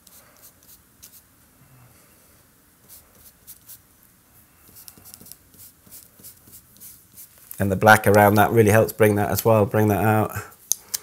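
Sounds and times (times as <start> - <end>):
paintbrush scratchy strokes: 0.0 - 1.3, 2.8 - 7.4.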